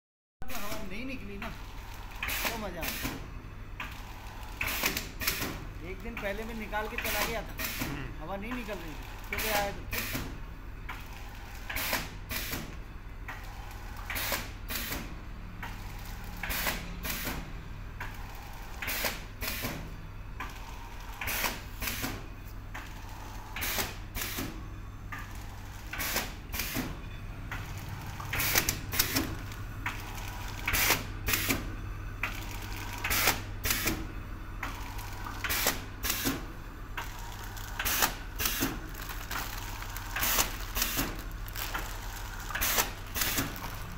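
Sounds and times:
packing machine clacks: 0:01.4 - 0:10.3, 0:10.9 - 0:43.9
machine low hum: 0:24.6 - 0:43.9.

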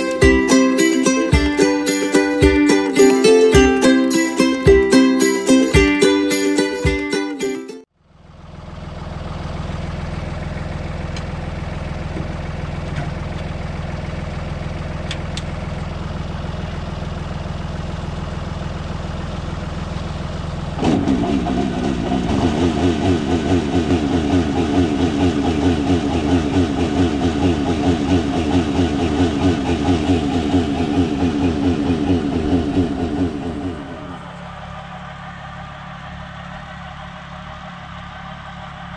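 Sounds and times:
tractor engine running: 0:00.0 - 0:38.9
vacuum pump throbbing: 0:20.8 - 0:38.9.

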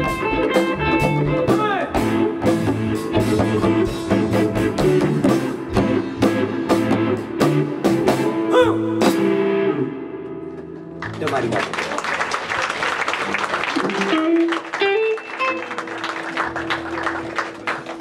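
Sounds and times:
electric guitars with bent notes: 0:00.0 - 0:11.3, 0:13.5 - 0:18.0
bass guitar: 0:00.0 - 0:11.5, 0:13.6 - 0:18.0.

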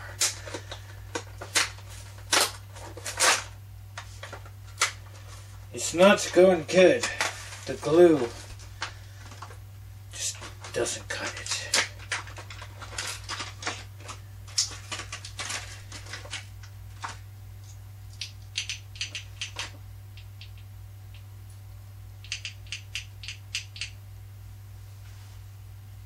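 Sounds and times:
plastic packaging crackling: 0:10.3 - 0:17.2
plastic figures clicking: 0:22.2 - 0:23.9.

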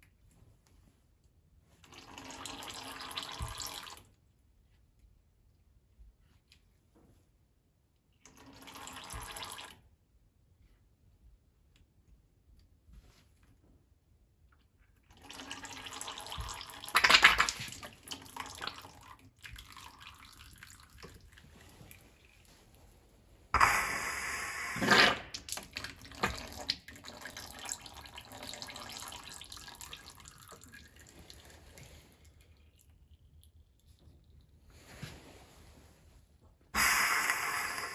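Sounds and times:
faint drips and clicks: 0:15.9 - 0:22.6, 0:25.4 - 0:34.6
rushing burst of oil: 0:36.8 - 0:37.9.

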